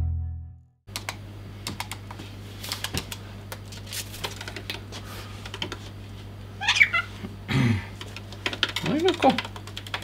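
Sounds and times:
low electrical hum: 0.9s - 10.0s.

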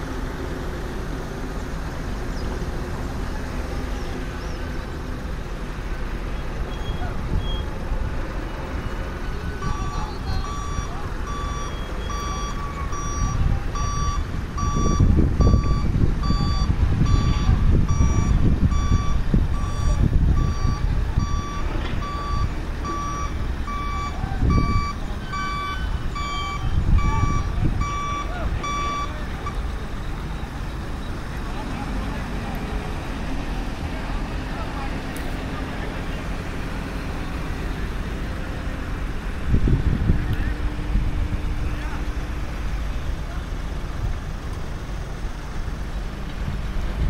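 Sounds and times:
heavy diesel machinery rumble: 0.0s - 47.0s
reversing warning beeper: 6.7s - 7.7s, 8.7s - 31.2s.

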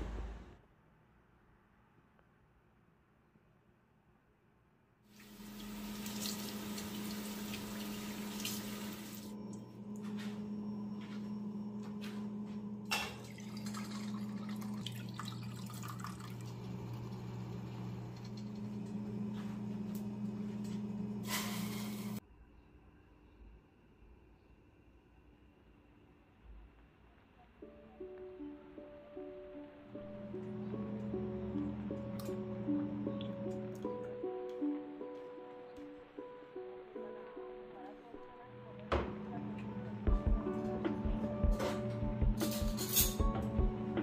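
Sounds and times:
tap water running into sink: 5.2s - 9.3s, 12.9s - 17.2s
clinks and splashes: 12.9s - 16.5s.

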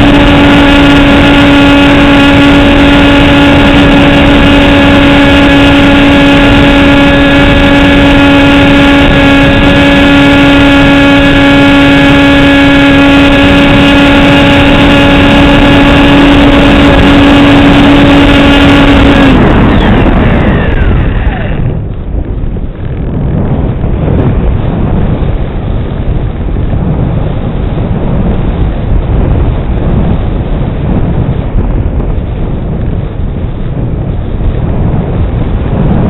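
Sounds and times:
model aircraft motor whine: 0.0s - 21.9s
wind buffeting on microphone: 0.0s - 36.0s
wind rush: 0.0s - 36.0s.

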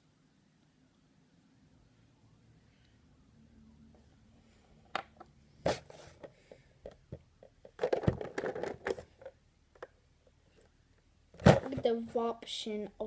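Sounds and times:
plastic clattering and rustling: 5.7s - 10.0s, 11.4s - 11.9s.

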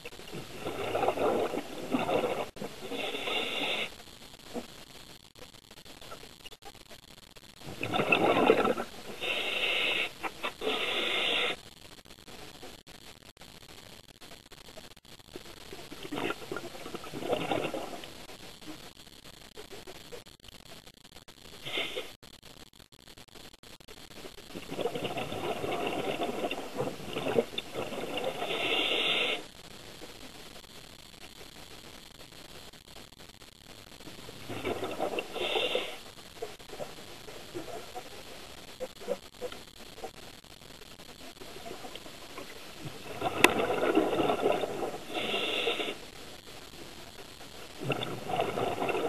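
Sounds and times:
high-pitched regulator hiss: 0.0s - 4.0s, 7.6s - 11.6s, 24.5s - 29.6s, 34.2s - 37.4s, 41.4s - 46.1s
air bubbles gurgling underwater: 0.2s - 3.8s, 7.6s - 11.0s, 15.8s - 18.1s, 24.5s - 29.3s, 34.2s - 35.9s, 41.7s - 46.0s, 47.8s - 49.0s.

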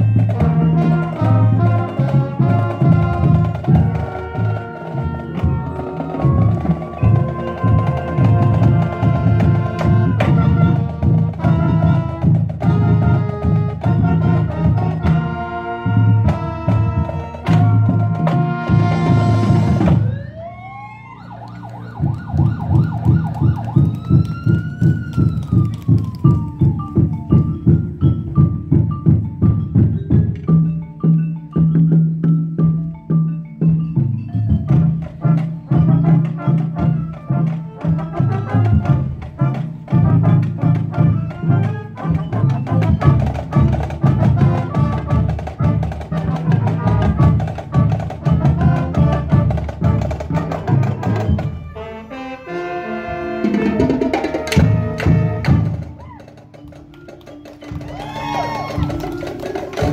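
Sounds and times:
drums beating: 0.0s - 51.8s, 53.2s - 59.9s
marching band playing: 0.0s - 59.9s
siren-like wail: 19.4s - 27.0s.

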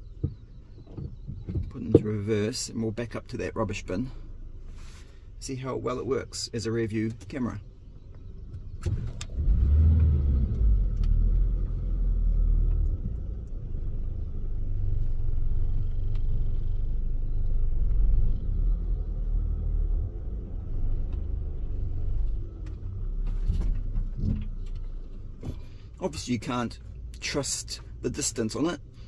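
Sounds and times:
van engine rumbling: 0.0s - 29.0s.

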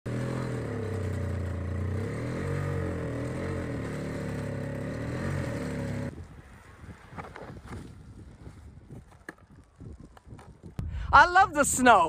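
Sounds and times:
snowblower engine running: 0.1s - 6.1s.

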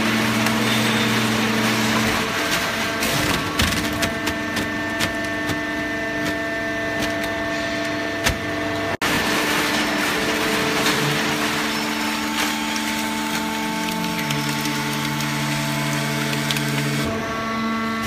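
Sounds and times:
hydraulic baler humming: 0.0s - 18.0s
material cracking and snapping: 12.4s - 17.1s.

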